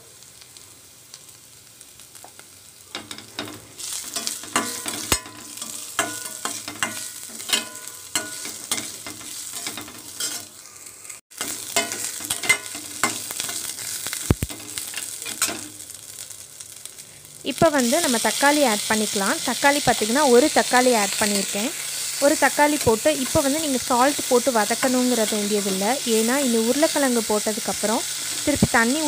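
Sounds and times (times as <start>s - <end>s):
cabbage sizzling in hot oil: 0.0s - 29.0s
metal skimmer scraping a wok: 3.0s - 10.6s.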